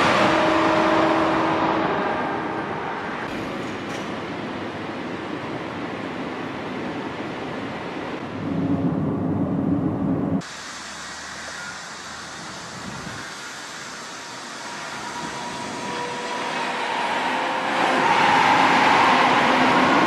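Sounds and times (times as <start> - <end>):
low rumbling hum of train: 0.0 - 20.0
train rushing noise: 0.0 - 20.0.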